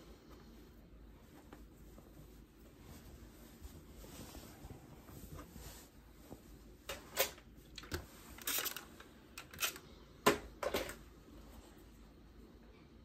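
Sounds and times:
clicks and knocks of handled tools: 0:06.9 - 0:11.0.

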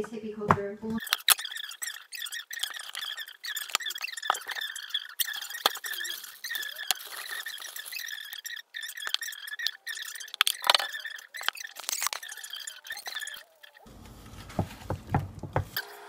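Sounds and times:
package rustling shake: 0:02.6 - 0:09.3
containers clicking and knocking: 0:02.6 - 0:15.8.

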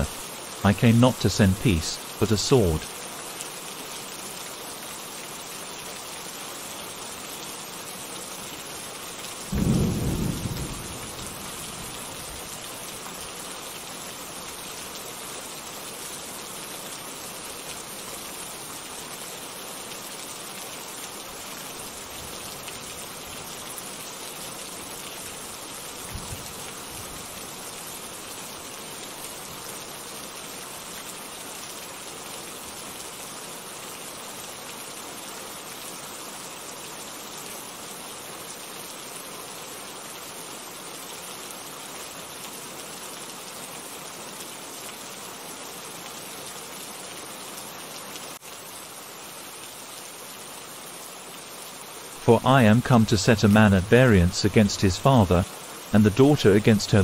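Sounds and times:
steady rain: 0:00.0 - 0:57.0
rolling thunder: 0:09.5 - 0:11.8.

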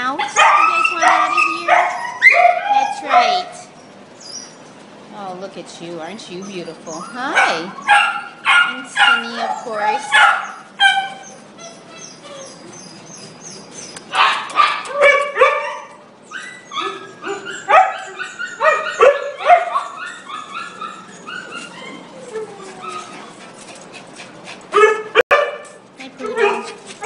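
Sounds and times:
many dogs barking: 0:00.1 - 0:03.7, 0:07.2 - 0:11.2, 0:14.1 - 0:16.0, 0:16.8 - 0:21.1, 0:24.8 - 0:26.8.

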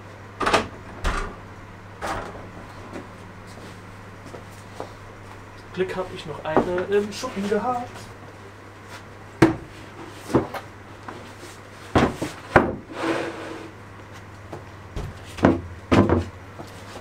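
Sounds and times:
board scraping on board: 0:12.8 - 0:13.7.

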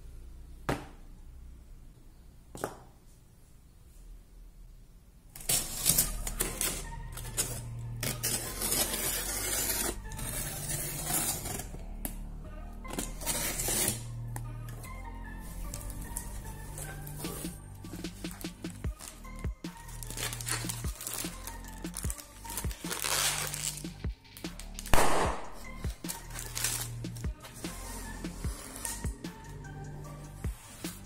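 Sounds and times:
knife cutting cardboard box tape: 0:05.4 - 0:11.7, 0:12.9 - 0:14.0, 0:26.1 - 0:27.2.

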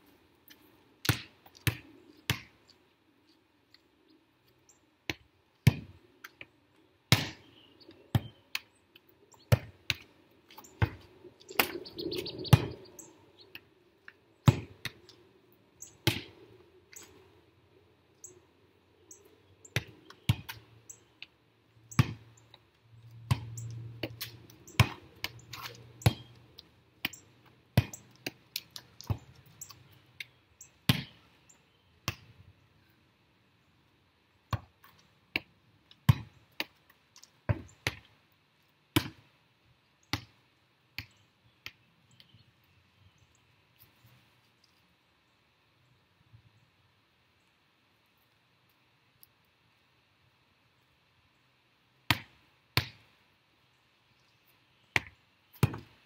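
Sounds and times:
ball bouncing on concrete: 0:01.0 - 0:02.6, 0:05.1 - 0:06.5, 0:07.1 - 0:08.7, 0:09.5 - 0:12.9, 0:13.6 - 0:15.0, 0:16.0 - 0:16.4, 0:19.8 - 0:20.6, 0:21.9 - 0:22.3, 0:23.0 - 0:31.2, 0:34.5 - 0:36.7, 0:37.5 - 0:38.1, 0:40.1 - 0:40.4, 0:55.0 - 0:56.0.

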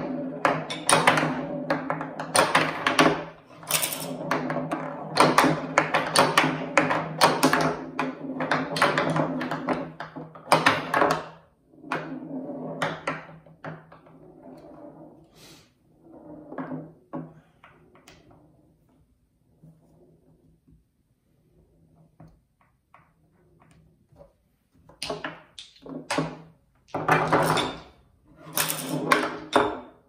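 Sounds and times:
balls knocking against wooden rails: 0:00.0 - 0:12.2, 0:24.9 - 0:27.9, 0:28.6 - 0:30.0
steel balls rolling on wooden playfield: 0:00.0 - 0:20.4, 0:25.0 - 0:30.0.

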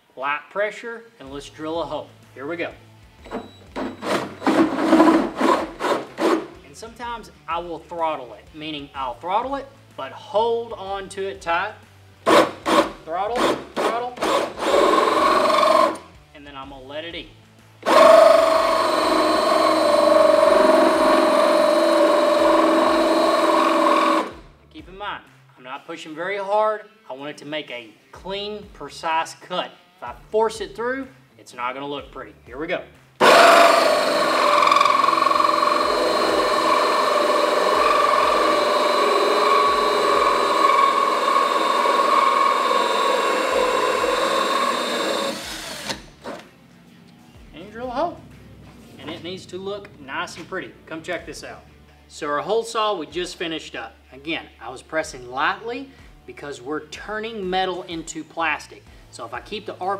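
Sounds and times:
cordless drill motor whine: 0:03.2 - 0:06.5, 0:14.2 - 0:16.0, 0:17.8 - 0:24.4, 0:33.2 - 0:46.4
hole saw cutting plastic: 0:03.3 - 0:06.6, 0:12.2 - 0:16.1, 0:17.8 - 0:24.4, 0:33.2 - 0:46.5.

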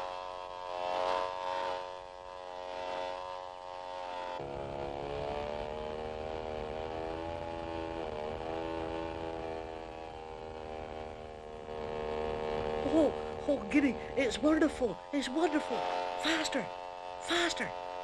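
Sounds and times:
propeller aeroplane engine droning: 0:00.0 - 0:18.0.

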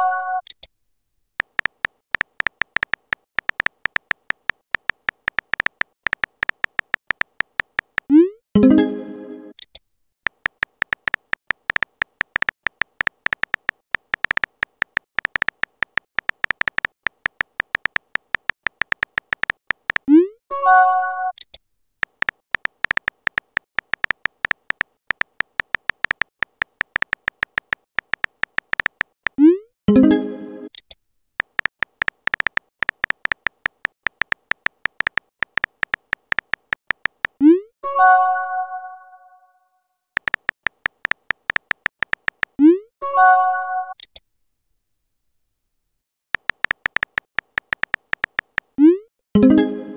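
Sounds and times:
phone keyboard typing clicks: 0:01.4 - 0:08.2, 0:09.5 - 0:20.1, 0:22.0 - 0:29.4, 0:30.8 - 0:37.4, 0:40.2 - 0:42.6, 0:46.4 - 0:48.8.

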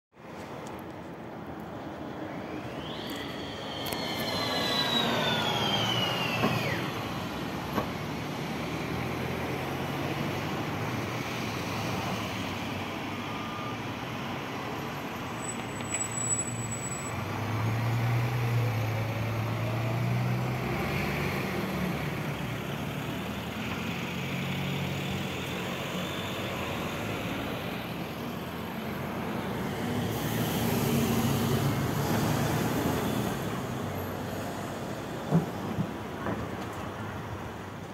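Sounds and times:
buses passing engine drone: 0:00.2 - 0:37.9
high whine falling in pitch: 0:02.4 - 0:07.0.

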